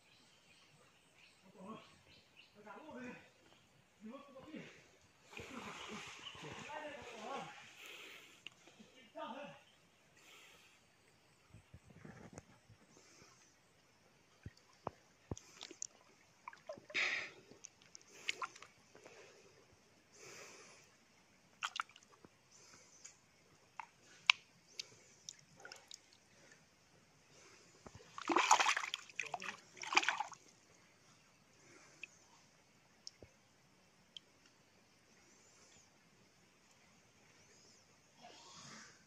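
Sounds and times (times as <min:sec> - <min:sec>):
hand splashing in stream: 0:21.6 - 0:22.0, 0:28.1 - 0:30.4.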